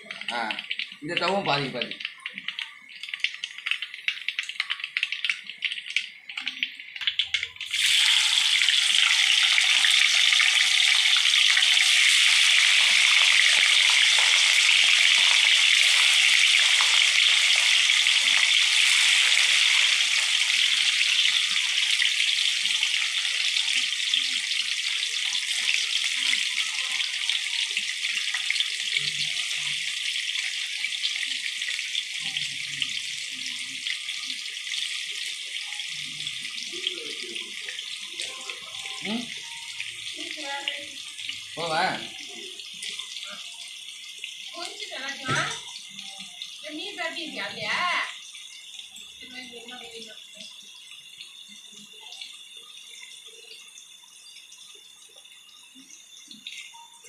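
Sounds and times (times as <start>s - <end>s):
oil crackling: 0.0s - 43.5s
food sizzling in hot oil: 0.0s - 57.0s.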